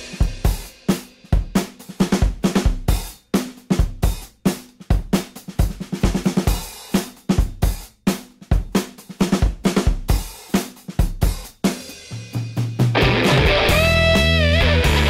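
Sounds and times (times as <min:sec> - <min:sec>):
drum kit playing a beat: 0:00.0 - 0:15.0.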